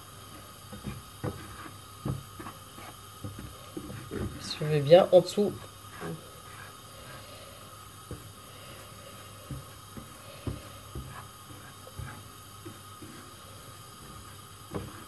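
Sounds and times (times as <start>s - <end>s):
faint hum: 0.0s - 15.0s
spatula scraping a frying pan: 0.7s - 4.3s, 5.8s - 7.2s.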